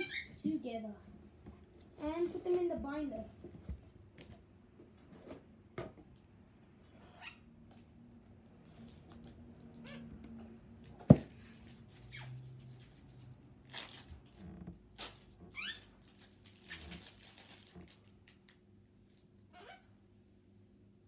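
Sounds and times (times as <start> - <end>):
plastic packaging crinkling: 11.6 - 18.6.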